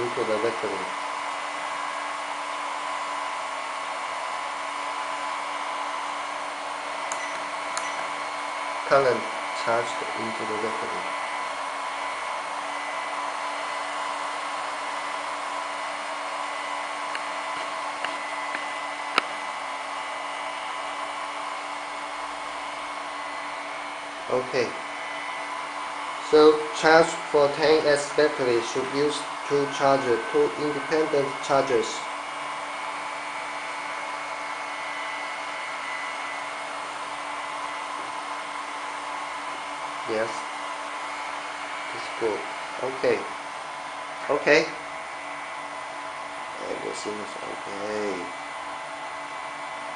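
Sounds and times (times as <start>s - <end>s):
cooling fans whirring: 0.0s - 49.9s
faint high whine: 7.0s - 12.1s.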